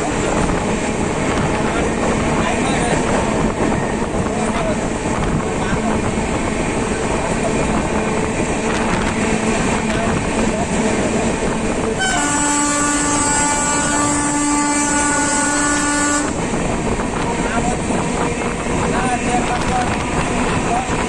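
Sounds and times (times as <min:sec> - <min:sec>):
wind rushing: 0:00.0 - 0:12.2, 0:14.9 - 0:21.0
train wheels rumbling: 0:00.0 - 0:21.0
locomotive horn blast: 0:12.0 - 0:16.4.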